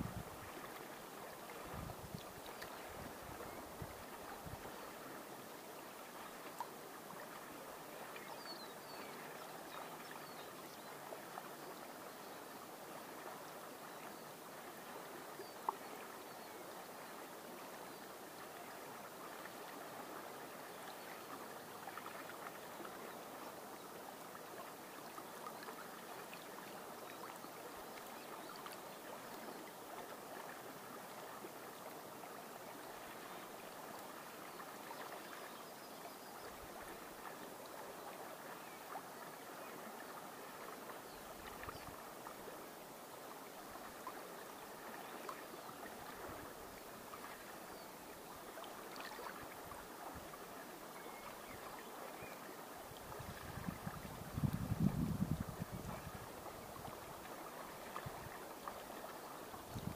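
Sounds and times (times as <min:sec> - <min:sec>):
river water lapping at a bank: 0:00.0 - 0:59.9
faint bird chirps: 0:50.9 - 0:52.5.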